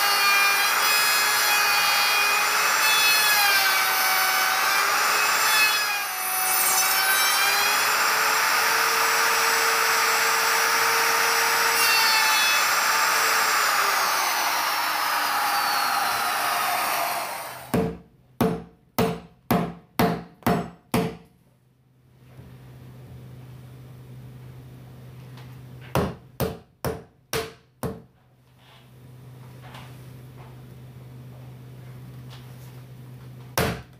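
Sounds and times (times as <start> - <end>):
router cutting into wood: 0.0 - 17.7
mallet striking chisel: 17.7 - 21.2.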